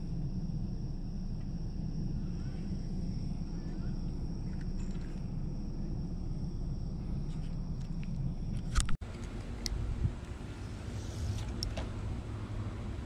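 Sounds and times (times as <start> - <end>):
faint high hum: 0.0 - 13.0
low background rumble: 0.0 - 13.0.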